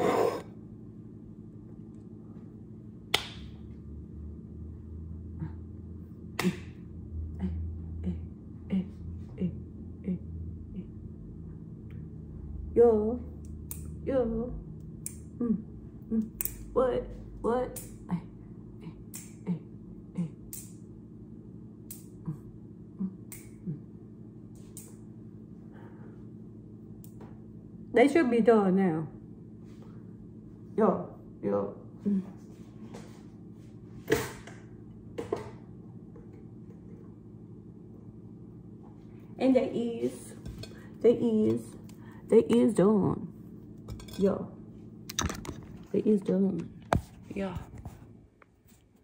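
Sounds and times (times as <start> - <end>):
low steady hum: 0.0 - 49.0
finger snaps and clicks: 3.1 - 3.5, 13.4 - 14.0, 14.8 - 15.3, 16.2 - 16.7, 19.1 - 19.4, 20.5 - 20.8, 21.8 - 22.2, 23.3 - 23.6, 24.6 - 25.0.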